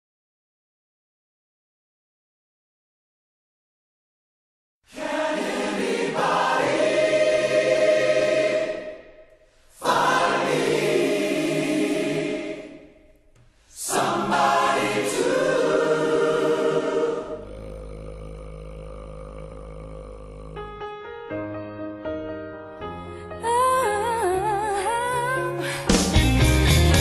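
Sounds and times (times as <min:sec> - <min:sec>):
choir singing: 0:04.9 - 0:17.9
soft music: 0:21.0 - 0:27.0.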